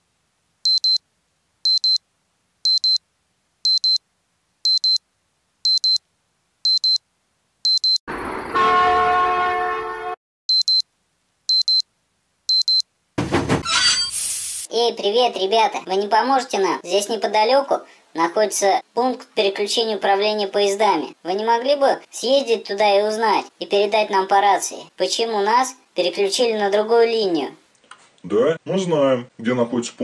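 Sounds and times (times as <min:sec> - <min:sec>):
electronic alarm double beeps: 0:00.7 - 0:01.0, 0:01.7 - 0:02.0, 0:02.7 - 0:03.0, 0:03.7 - 0:04.0, 0:04.7 - 0:05.0, 0:05.7 - 0:06.0, 0:06.6 - 0:07.0, 0:07.7 - 0:08.0, 0:10.5 - 0:10.8, 0:11.5 - 0:11.8, 0:12.5 - 0:12.8
train horn chord: 0:08.6 - 0:10.2.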